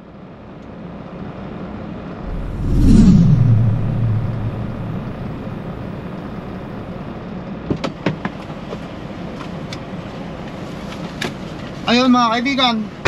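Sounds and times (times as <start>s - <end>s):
low tone: 2.3s - 7.4s.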